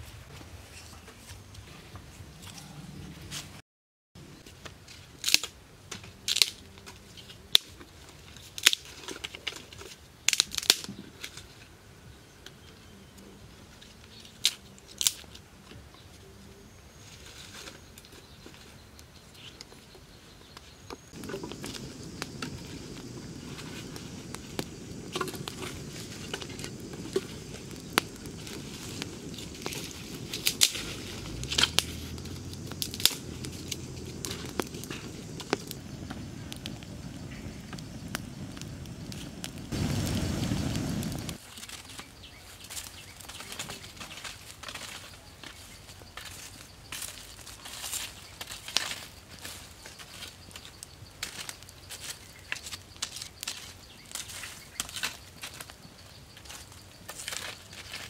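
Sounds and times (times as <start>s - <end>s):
campfire crackling: 4.3s - 11.9s, 13.8s - 15.7s, 20.6s - 58.0s
twigs snapping: 10.3s - 10.9s, 21.2s - 42.0s.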